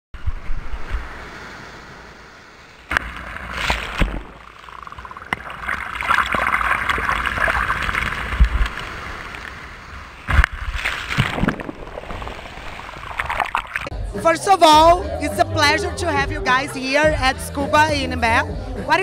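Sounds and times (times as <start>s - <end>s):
surf washing up sand: 0.2s - 13.9s.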